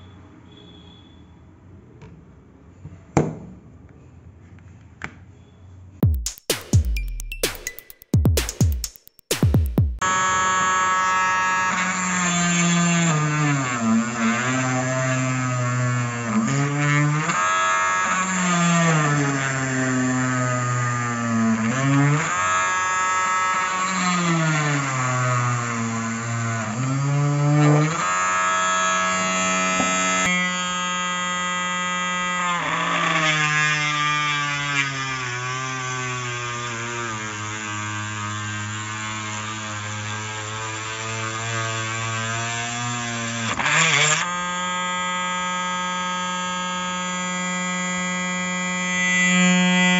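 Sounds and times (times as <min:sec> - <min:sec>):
drill whining into wood: 0:10.0 - 0:49.9.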